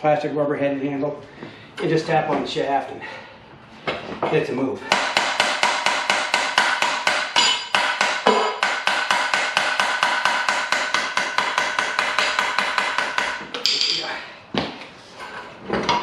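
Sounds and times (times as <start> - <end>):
hammer tapping on metal shaft: 4.9 - 14.0.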